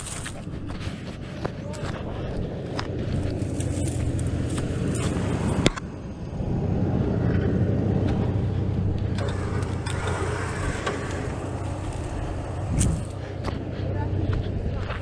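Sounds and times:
engine idling: 0:00.0 - 0:15.0
winch running under load: 0:06.5 - 0:15.0.

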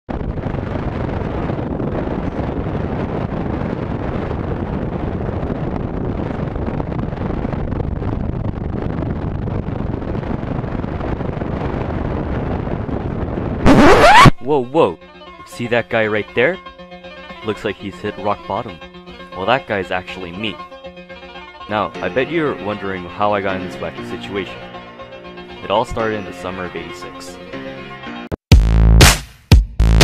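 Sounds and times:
wind rushing over microphone: 0:00.1 - 0:14.6.

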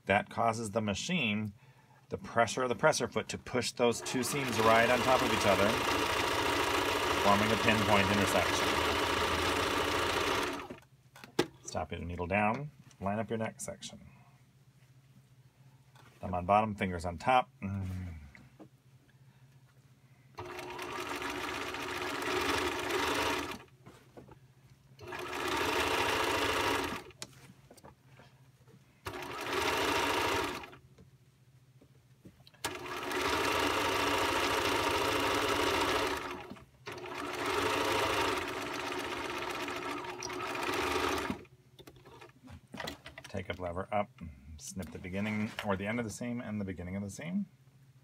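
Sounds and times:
sewing machine stitching: 0:04.0 - 0:10.8, 0:20.4 - 0:23.7, 0:25.0 - 0:27.2, 0:29.0 - 0:30.8, 0:32.6 - 0:42.9.

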